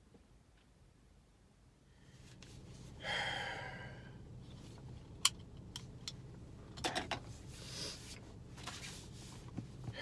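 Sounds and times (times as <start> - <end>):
car cabin low hum: 2.1 - 10.0.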